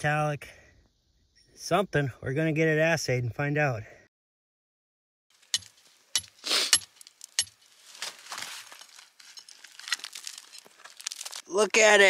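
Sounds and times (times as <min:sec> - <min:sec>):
rock fragments crumbling: 0:05.4 - 0:12.0
hammer striking rock: 0:05.5 - 0:07.6.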